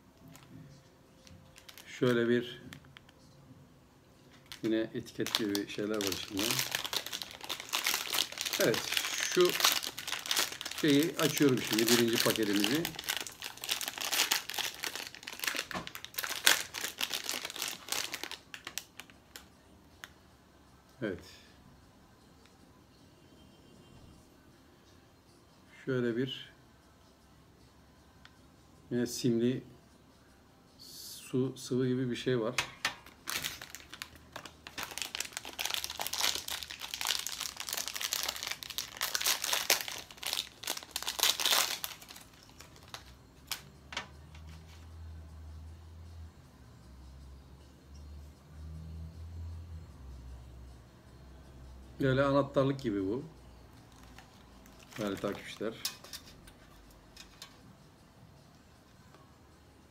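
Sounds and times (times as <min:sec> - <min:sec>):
foil sachet crinkling: 0:01.2 - 0:02.6, 0:04.4 - 0:19.4, 0:33.0 - 0:43.6, 0:53.9 - 0:56.2.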